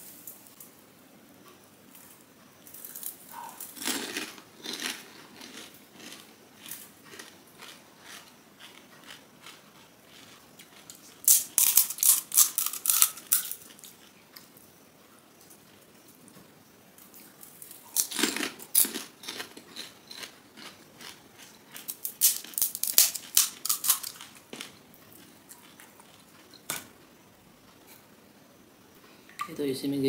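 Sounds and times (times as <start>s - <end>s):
crunchy shell chewing: 1.5s - 15.7s, 17.0s - 27.0s
crisp shell cracking: 10.7s - 13.9s, 21.7s - 24.8s.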